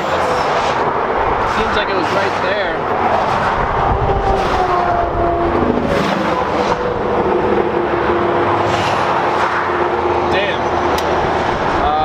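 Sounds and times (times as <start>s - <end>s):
highway traffic passing: 0.0s - 12.0s.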